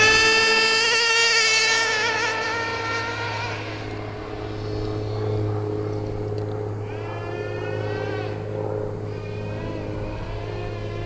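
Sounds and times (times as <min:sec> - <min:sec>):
rc car nitro engine screaming: 0:00.0 - 0:04.6, 0:06.8 - 0:08.4, 0:09.1 - 0:11.0.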